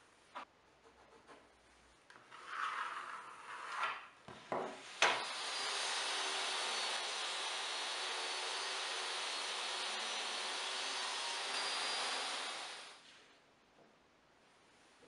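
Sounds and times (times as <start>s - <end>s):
table saw motor running: 5.2s - 13.0s.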